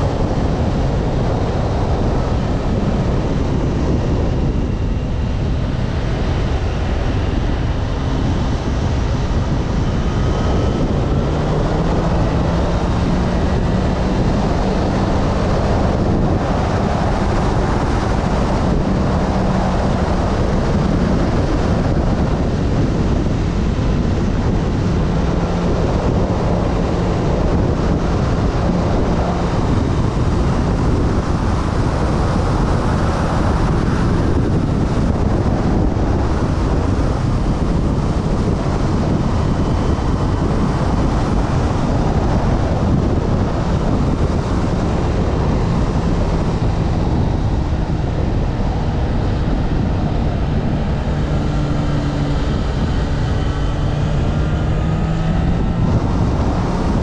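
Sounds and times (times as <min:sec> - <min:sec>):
motorcycle engine running: 0:00.0 - 0:57.0
wind buffeting microphone: 0:00.0 - 0:57.0.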